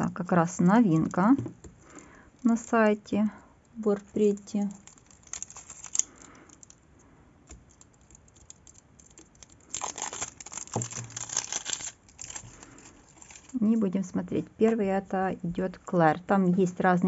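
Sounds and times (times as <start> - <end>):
plastic wrapping crinkling: 0.4 - 13.8.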